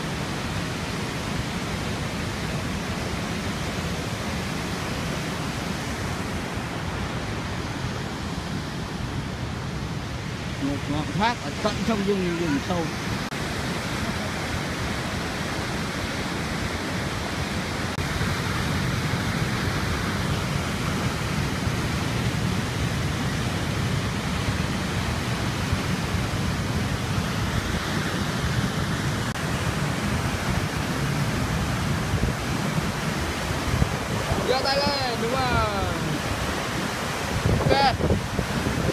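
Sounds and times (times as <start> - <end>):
waterfall rushing onto rocks: 0.0 - 38.9.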